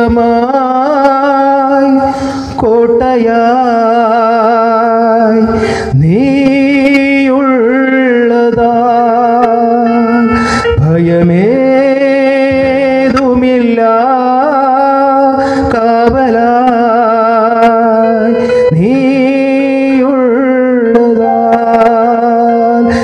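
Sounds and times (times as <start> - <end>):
man singing into a microphone: 0.0 - 23.0.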